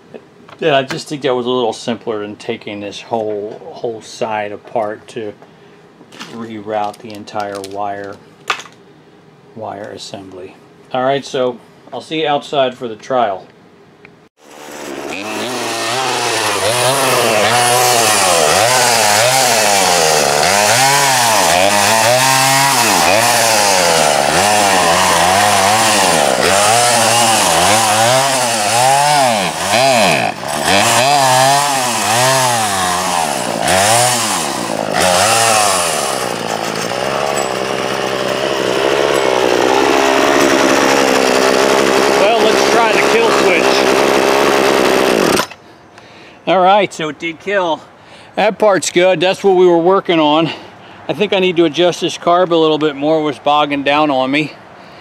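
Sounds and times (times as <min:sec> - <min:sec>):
person talking: 0:06.2 - 0:08.2, 0:15.2 - 0:18.8, 0:42.1 - 0:44.0, 0:46.5 - 0:54.6
chainsaw revving: 0:14.4 - 0:45.6.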